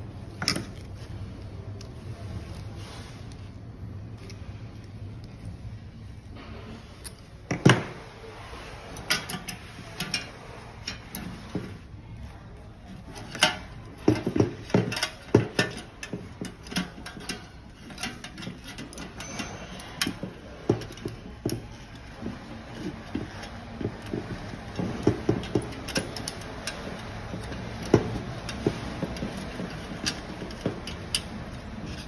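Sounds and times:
metallic clicks and knocks: 13.0 - 32.0.

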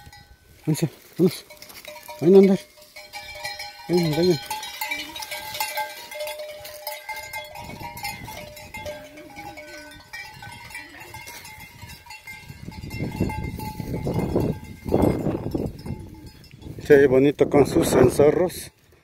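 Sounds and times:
sheep bells clanking: 0.0 - 19.0
sheep bleating: 8.8 - 11.4.

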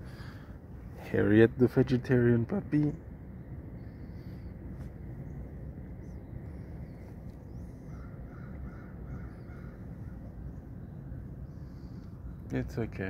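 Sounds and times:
steady low rumble: 0.0 - 13.0
crow cawing: 7.9 - 10.2.

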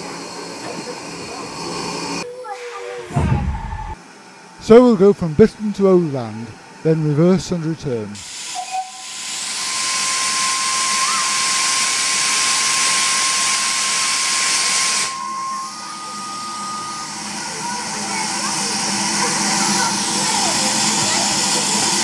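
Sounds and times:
steam locomotive venting steam: 8.2 - 22.0.

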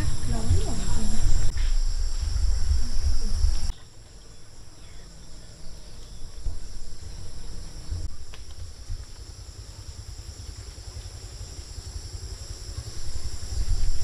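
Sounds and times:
loud low rumble: 0.0 - 3.7
high-pitched insect chorus: 0.0 - 14.0.

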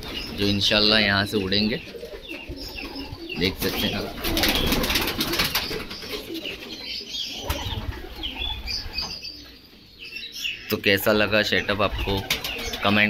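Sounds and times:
pigeons cooing: 0.0 - 13.0
pigeons flapping wings: 1.9 - 6.7, 11.9 - 12.9.

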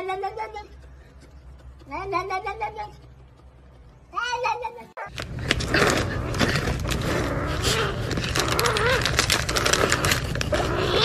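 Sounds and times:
plastic packet crackling: 5.1 - 11.0.

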